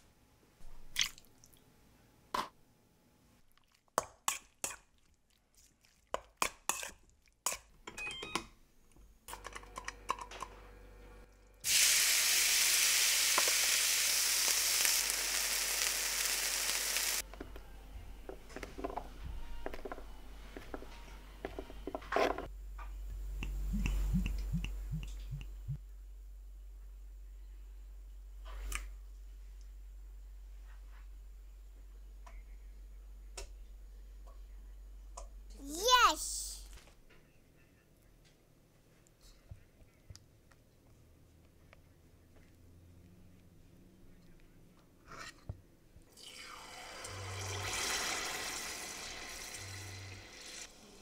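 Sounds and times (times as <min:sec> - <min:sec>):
chicken sizzling in a frying pan: 0:11.6 - 0:17.2, 0:46.5 - 0:51.0.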